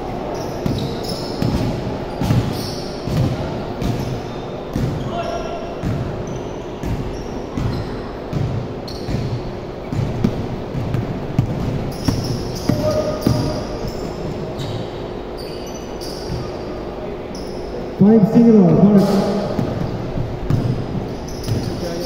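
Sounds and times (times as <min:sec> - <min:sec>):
sneakers squeaking: 0:00.2 - 0:22.0
basketball bouncing on hardwood: 0:07.6 - 0:13.6, 0:19.5 - 0:21.7.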